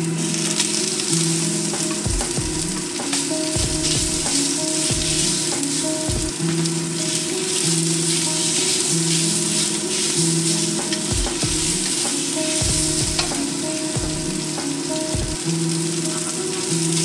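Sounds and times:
food sizzling in a wok: 0.0s - 17.0s
wooden spatula scraping wok: 1.7s - 15.1s.

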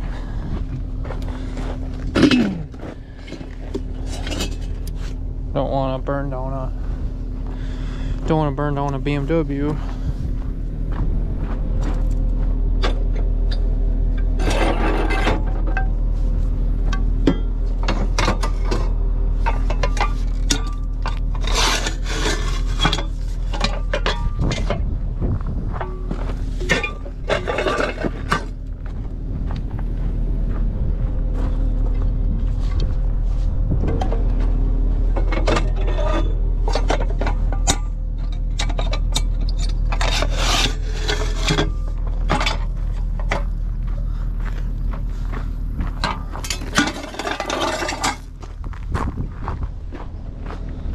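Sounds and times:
diesel engine idling: 0.0s - 50.9s
metal scraping on metal: 1.3s - 5.7s, 12.8s - 16.4s, 17.2s - 24.8s, 25.7s - 28.6s, 32.4s - 43.6s, 46.0s - 48.4s
metal parts clanking: 1.3s - 5.8s, 12.8s - 16.0s, 16.9s - 24.9s, 25.7s - 28.7s, 33.8s - 43.6s, 46.0s - 48.5s.

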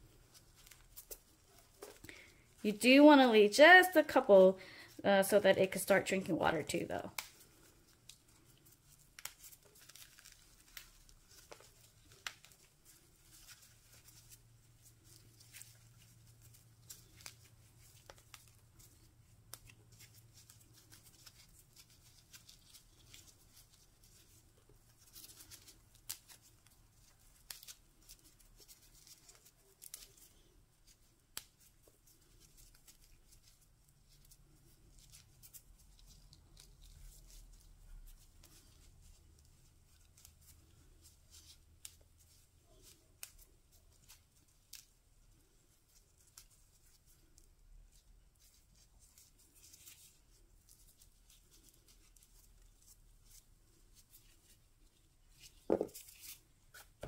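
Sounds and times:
crackling and rustling of soil: 7.1s - 57.0s.

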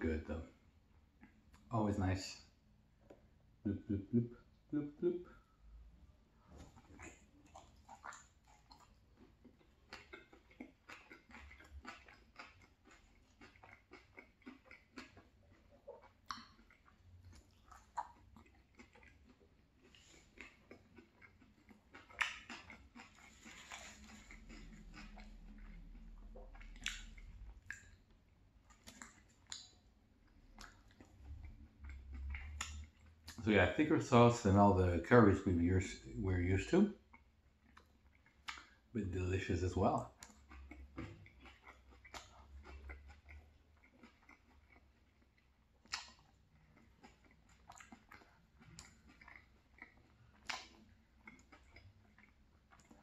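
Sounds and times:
low steady hum: 0.0s - 12.0s
wet chewing: 6.5s - 33.5s, 37.0s - 53.0s.

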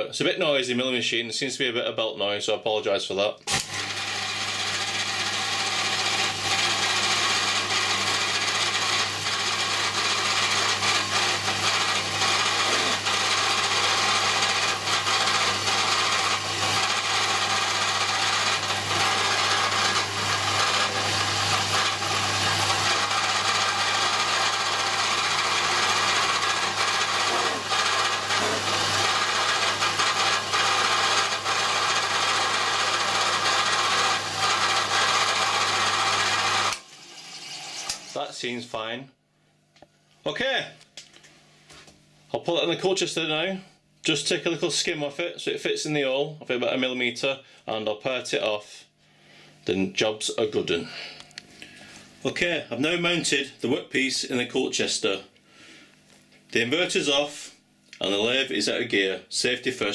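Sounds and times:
milling machine cutting metal: 3.5s - 38.2s
drive belt noise: 3.6s - 37.1s.

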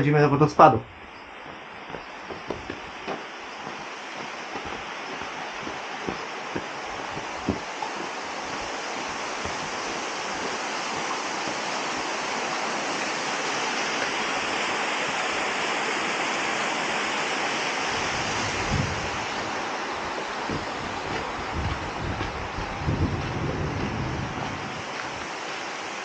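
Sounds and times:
stream rushing over boulders: 1.0s - 26.0s
wind buffeting microphone: 1.8s - 12.4s, 17.9s - 25.4s.

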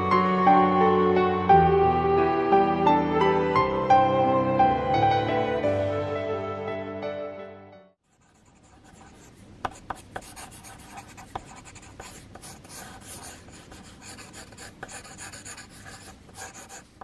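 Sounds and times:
pencil sketching on paper: 8.1s - 17.0s.

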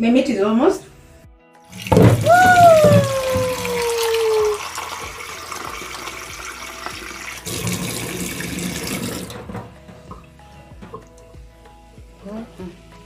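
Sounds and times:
tap water running into sink: 1.7s - 11.2s.

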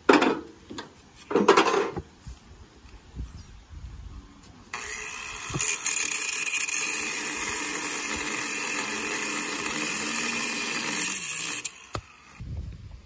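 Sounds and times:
angle grinder cutting metal: 4.7s - 12.4s.

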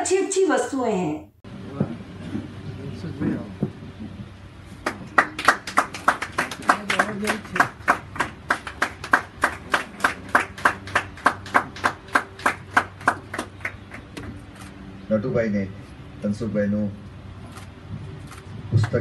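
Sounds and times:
hands clapping: 4.8s - 14.3s.

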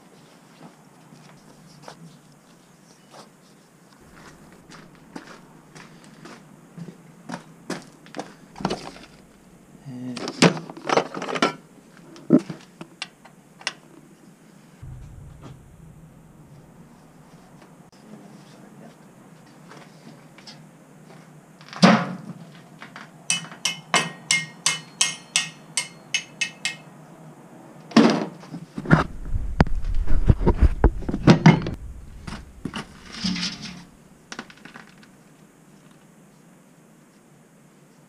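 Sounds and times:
low rumble: 4.0s - 6.0s, 8.5s - 9.9s, 14.8s - 17.9s, 28.8s - 34.3s
metal tools tapping on metal: 23.3s - 26.8s.

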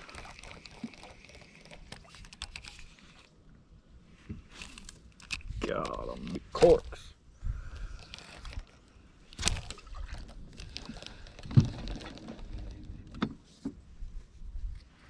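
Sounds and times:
fishing rod and reel handling: 0.0s - 3.3s, 4.4s - 7.0s, 7.7s - 13.5s.

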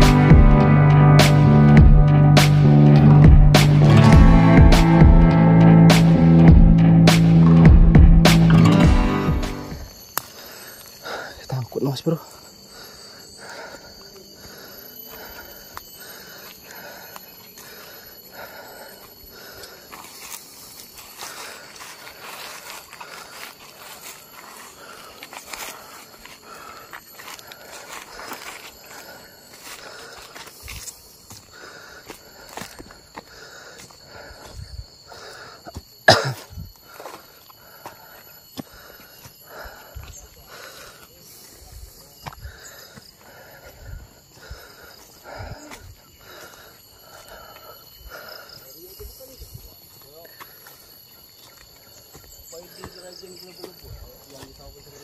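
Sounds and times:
high insect whine: 0.0s - 55.0s
footsteps on dry leaves: 19.8s - 35.0s
person coughing: 36.0s - 36.6s.

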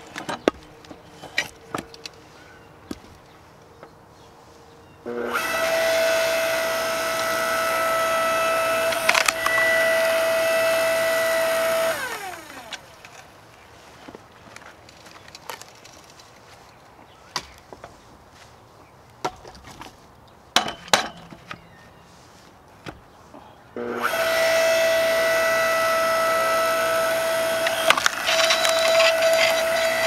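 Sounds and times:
log splitter motor whining: 5.0s - 13.1s, 23.8s - 30.0s
log splitting crack: 8.8s - 9.7s, 27.3s - 30.0s.

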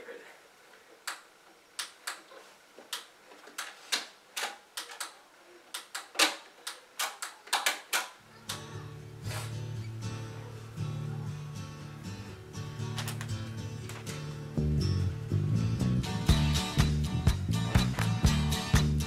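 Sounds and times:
music playing: 8.7s - 19.0s.

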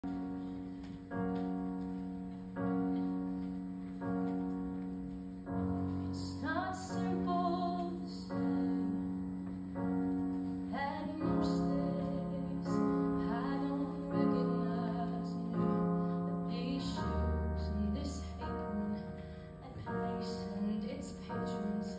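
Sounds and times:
piano chords: 0.0s - 21.9s
girl singing slow song: 5.6s - 21.9s.

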